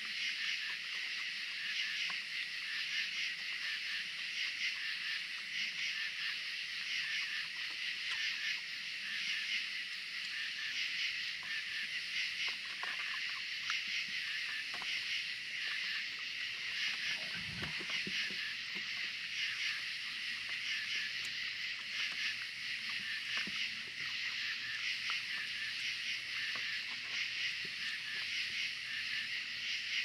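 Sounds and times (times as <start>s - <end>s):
night insects chorus: 0.0s - 30.0s
raccoons chewing food: 10.1s - 30.0s.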